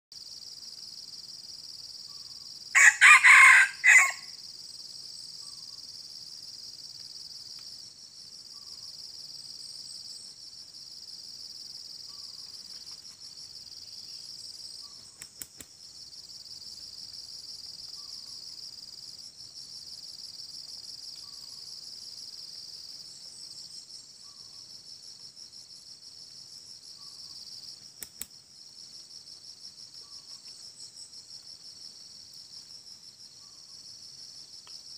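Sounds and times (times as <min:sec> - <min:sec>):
insects droning: 0:00.2 - 0:34.9
rooster crowing: 0:02.7 - 0:04.4.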